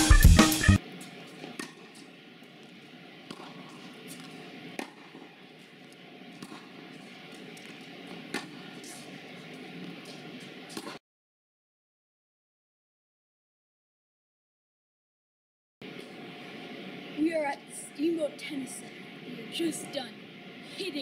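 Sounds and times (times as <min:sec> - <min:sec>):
racket hitting tennis ball: 0:01.1 - 0:11.0
ball bouncing: 0:01.4 - 0:01.9, 0:03.3 - 0:05.3, 0:06.3 - 0:08.8, 0:09.8 - 0:11.0
faint room hiss: 0:15.8 - 0:21.0.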